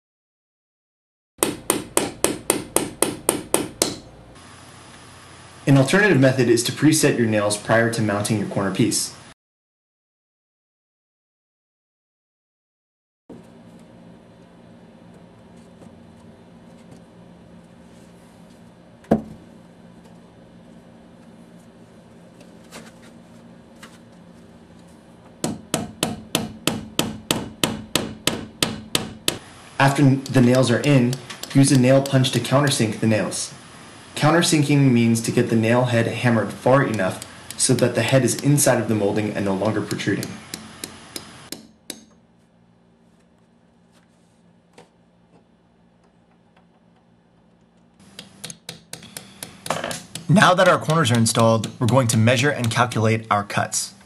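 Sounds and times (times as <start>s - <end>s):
hammer striking nail: 1.4s - 4.0s, 25.4s - 29.4s, 30.0s - 32.8s, 39.6s - 42.2s, 48.1s - 52.8s.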